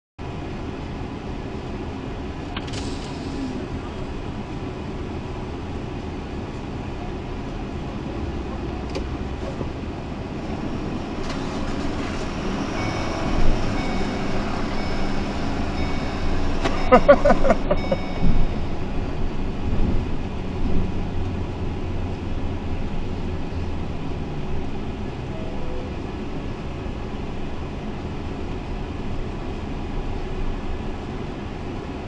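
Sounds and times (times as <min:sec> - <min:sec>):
vehicle engine and road noise: 0:00.2 - 0:32.0.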